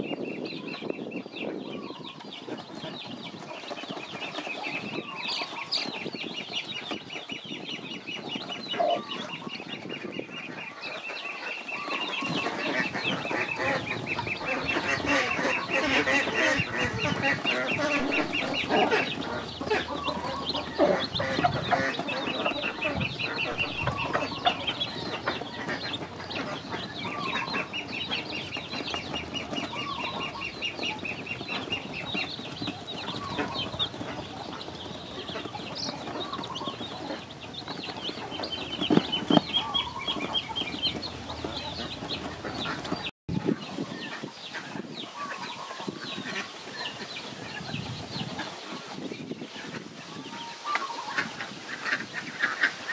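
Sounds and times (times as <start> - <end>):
ducklings and chicks peeping: 0.0 - 52.9.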